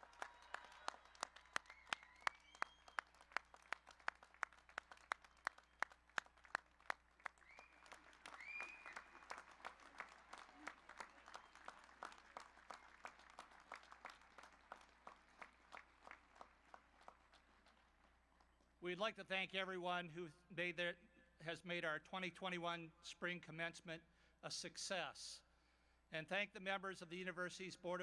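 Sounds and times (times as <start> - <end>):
audience applauding: 0.0 - 18.1.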